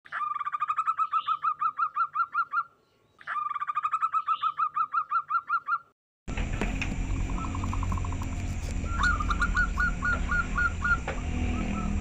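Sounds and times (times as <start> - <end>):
dove cooing: 7.0 - 12.0.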